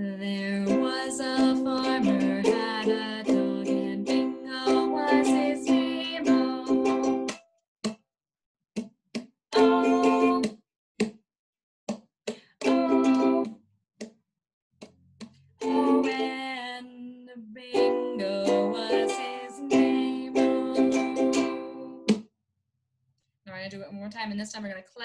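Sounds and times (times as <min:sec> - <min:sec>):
person singing: 0:00.0 - 0:07.3, 0:09.5 - 0:10.5, 0:12.6 - 0:13.5, 0:15.6 - 0:22.1
ukulele strumming: 0:00.4 - 0:07.4, 0:09.5 - 0:10.6, 0:12.6 - 0:13.6, 0:15.6 - 0:16.8, 0:17.7 - 0:22.2.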